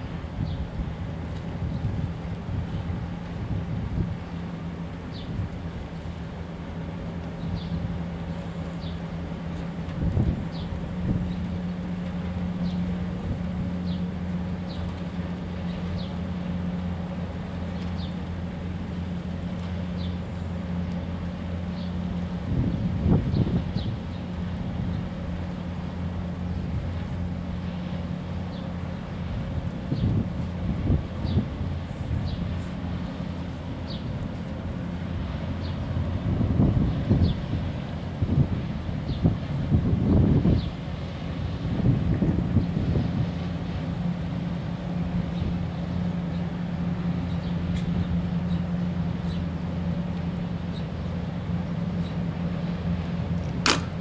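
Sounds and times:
ship engine low drone: 0.0s - 54.0s
sharp click: 53.4s - 54.0s.

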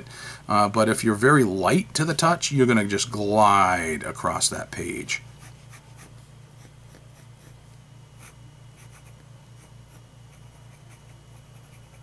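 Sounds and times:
low steady hum: 0.0s - 12.0s
pen nib scratching on paper: 8.2s - 12.0s.

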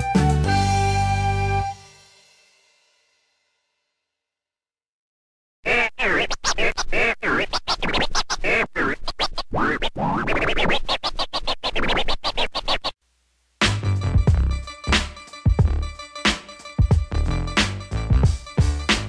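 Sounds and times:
turntable scratching: 5.7s - 13.0s, 16.6s - 19.0s
beat with heavy bass: 13.6s - 19.0s.

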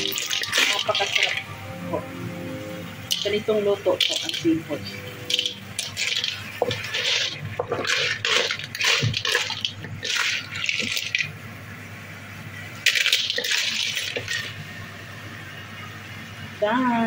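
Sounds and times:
wooden spatula scraping thick sauce: 6.6s - 10.8s.

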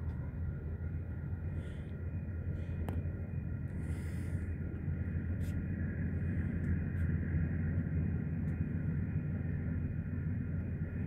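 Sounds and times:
low rumble: 0.0s - 11.0s.

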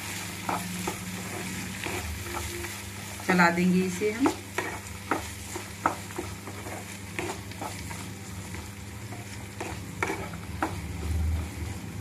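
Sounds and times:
spatula scraping a pan: 0.0s - 11.7s
vegetables sizzling in oil: 0.0s - 12.0s.

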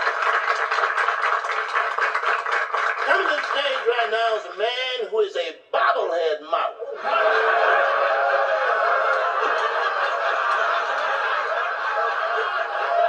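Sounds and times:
studio audience laughing: 7.0s - 13.0s.

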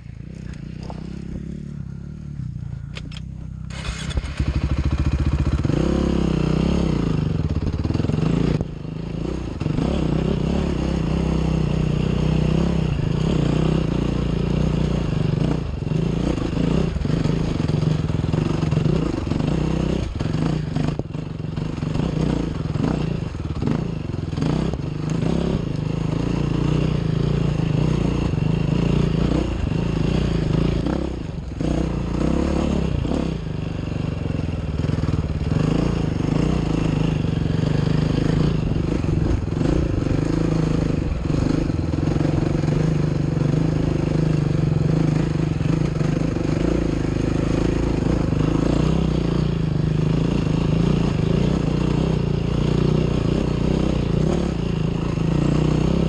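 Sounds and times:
dirt bike engine under load: 2.8s - 5.8s.

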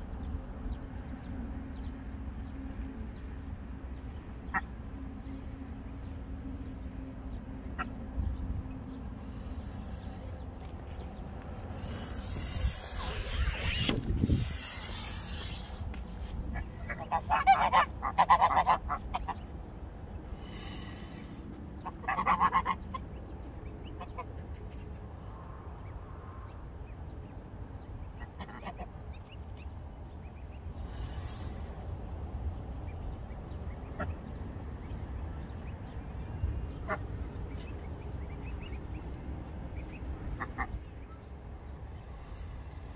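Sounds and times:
geese honking: 16.5s - 19.5s, 20.5s - 23.0s.

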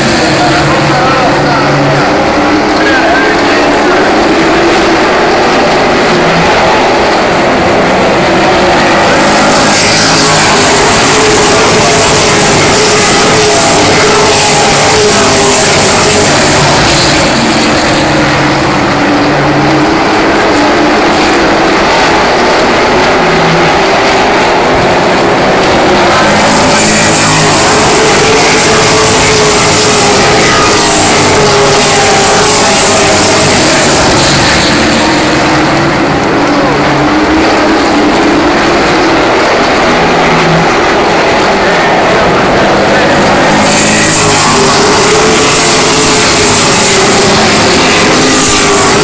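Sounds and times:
race trucks engines roaring: 0.0s - 49.0s.

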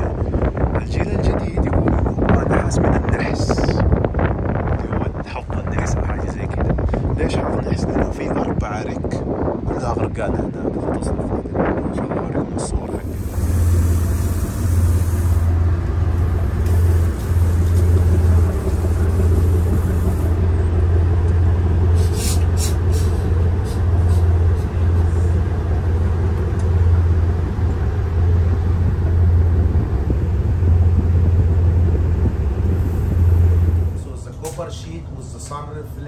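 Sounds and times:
boat engine drone: 12.8s - 36.0s.

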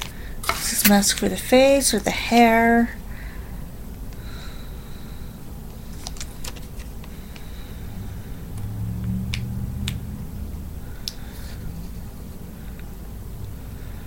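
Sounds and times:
low rumble: 7.8s - 11.0s.

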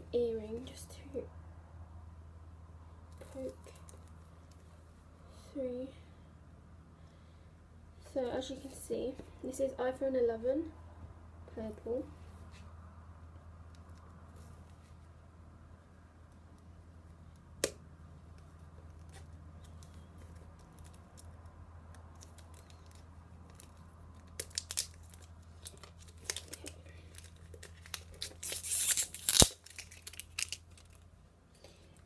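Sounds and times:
plastic wrap crackling: 22.0s - 31.2s.

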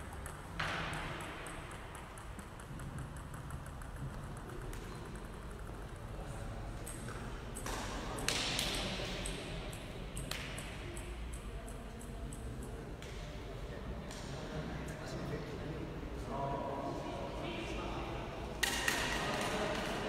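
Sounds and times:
table tennis ball clicks: 0.0s - 6.1s.

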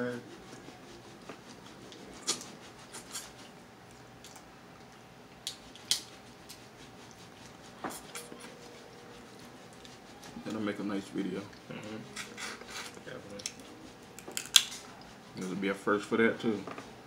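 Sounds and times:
crab shells cracking: 14.2s - 14.8s.

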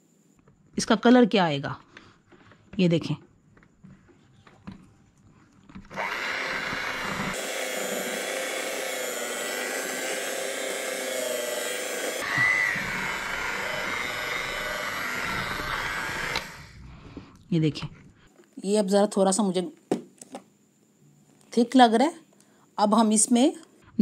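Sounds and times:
electric hand mixer whisking: 5.9s - 16.7s.

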